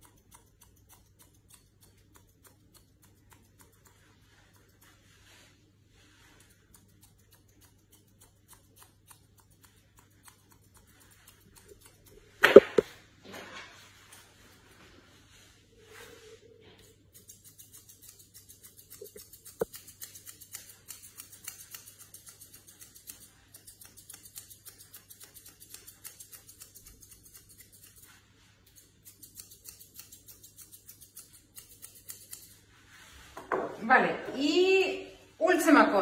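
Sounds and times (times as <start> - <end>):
scissors snipping hair: 0.0 - 5.4, 6.2 - 13.0, 14.0 - 14.7, 16.8 - 32.7.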